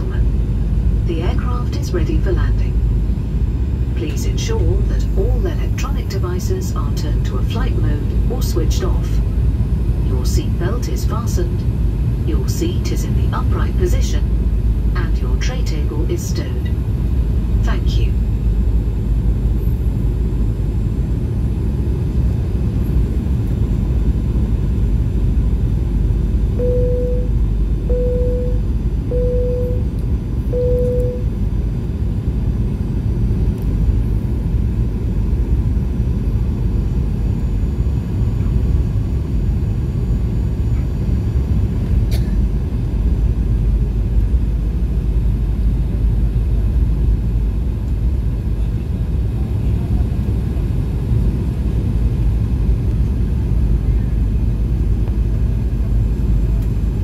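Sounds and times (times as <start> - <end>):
airplane cabin engine rumble: 0.0 - 57.0
short beeps: 26.6 - 29.9, 30.5 - 31.3.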